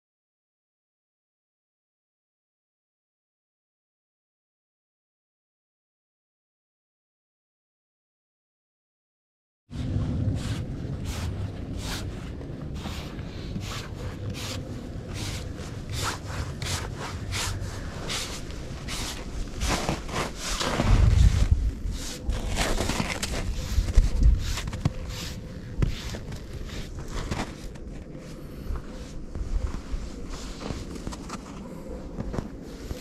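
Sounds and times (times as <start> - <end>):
brush sweeping sawdust off wood: 10.3 - 22.8, 23.4 - 27.6.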